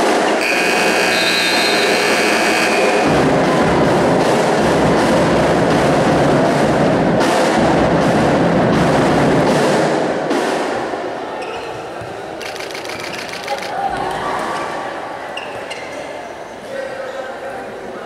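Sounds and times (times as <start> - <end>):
crowd cheering: 0.0 - 5.3, 11.5 - 15.4
rhythmic beating from stands: 0.0 - 11.2, 12.3 - 13.7.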